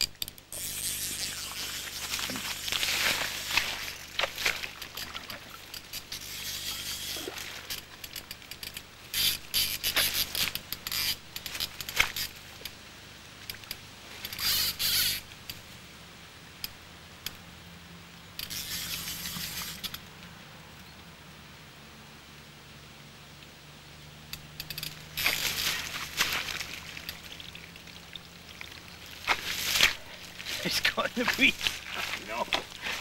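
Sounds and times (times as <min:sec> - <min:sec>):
fly reel buzzing: 0:00.0 - 0:12.5, 0:14.2 - 0:15.3, 0:18.4 - 0:20.0, 0:24.6 - 0:33.0
light reel clicks: 0:04.9 - 0:12.8, 0:13.4 - 0:15.6, 0:18.3 - 0:20.1.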